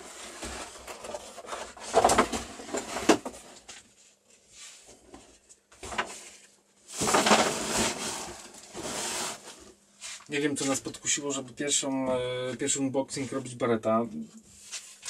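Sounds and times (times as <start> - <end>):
cardboard scraping rustle: 4.6 - 10.3.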